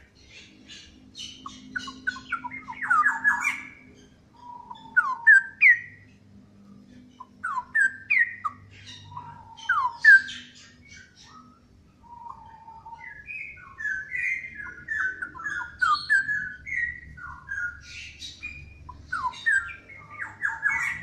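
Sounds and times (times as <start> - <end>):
bird singing whistled phrases: 0.7 - 6.0, 7.2 - 21.0.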